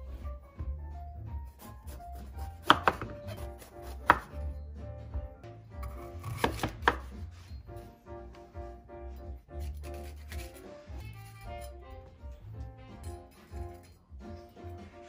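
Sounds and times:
knife cutting peppers: 1.5s - 4.4s, 5.8s - 7.3s, 9.5s - 11.4s
knife knocking on cutting board: 2.6s - 4.3s, 6.4s - 7.1s.

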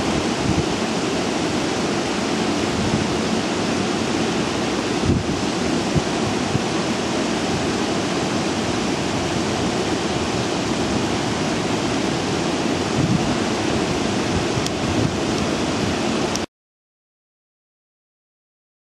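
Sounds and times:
outdoor rushing noise: 0.0s - 16.4s.

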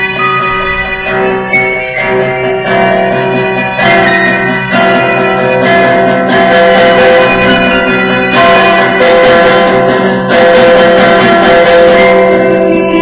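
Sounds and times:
guitar music with held chords: 0.0s - 13.0s.

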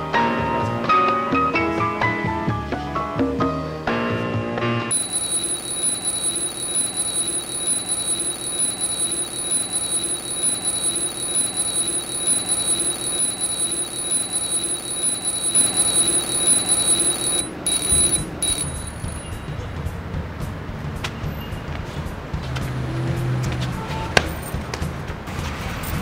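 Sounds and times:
mechanical alarm clock bell ringing: 4.9s - 19.6s.

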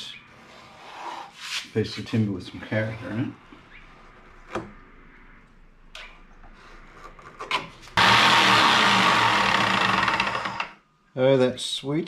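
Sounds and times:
jigsaw cutting wood: 8.0s - 10.8s.

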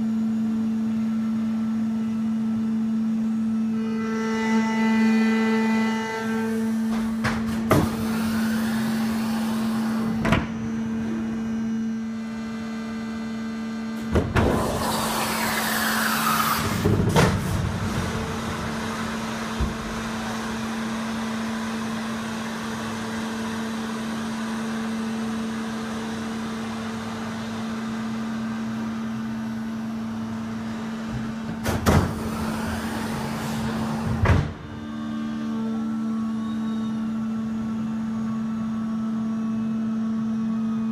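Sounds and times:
steady mechanical hum: 0.0s - 40.9s
falling hydraulic whine: 14.0s - 22.4s.

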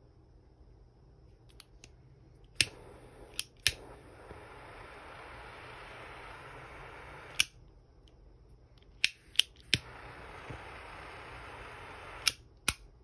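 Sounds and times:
torch flame hissing: 2.6s - 7.5s, 9.1s - 12.4s
lighter clicks: 2.6s - 7.6s, 9.0s - 12.9s.

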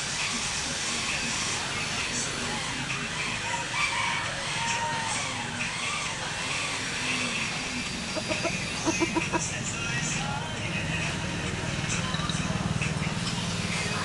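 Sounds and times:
steady background noise: 0.0s - 14.0s
rooster clucking: 8.0s - 9.6s.

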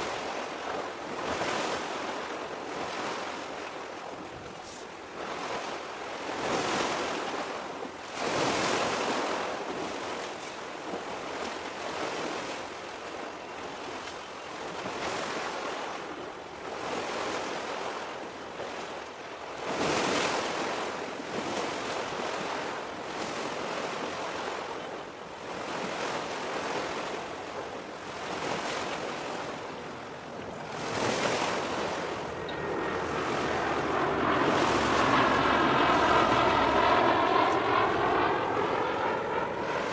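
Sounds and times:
sea waves washing in: 0.0s - 39.9s.

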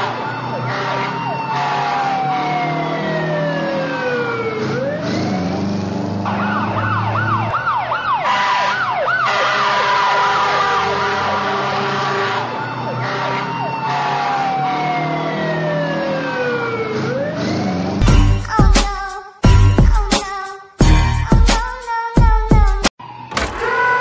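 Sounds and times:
emergency vehicle siren: 0.0s - 18.1s, 23.0s - 24.0s.

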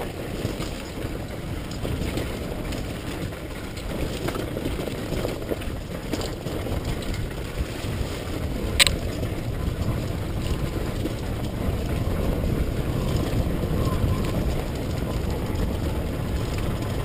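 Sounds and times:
dirt bike engine running: 0.0s - 17.0s
wind rumbling on microphone: 0.0s - 17.0s.

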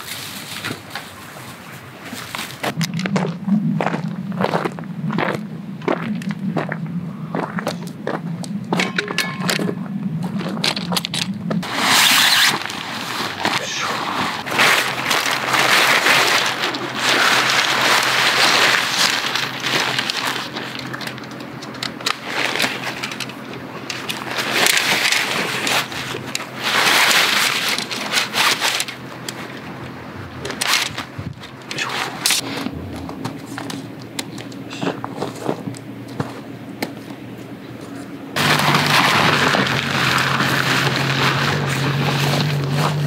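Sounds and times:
tent fabric rustling over gravel: 0.0s - 2.8s, 11.6s - 34.0s, 38.4s - 43.0s
footsteps crunching on gravel: 2.1s - 11.0s, 12.6s - 26.7s, 32.4s - 37.1s.

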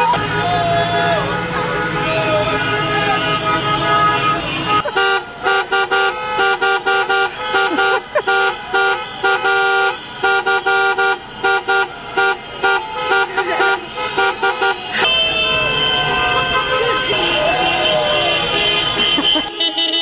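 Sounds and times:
car horns honking: 0.0s - 20.0s.

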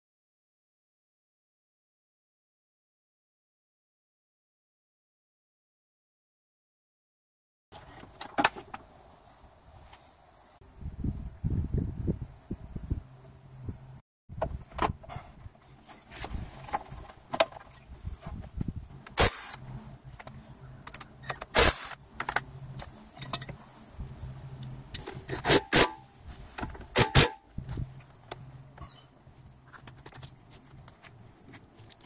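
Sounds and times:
sharp metallic clicks and clanks: 20.2s - 23.6s, 24.9s - 27.4s
cordless power driver whirring: 21.3s - 22.9s.

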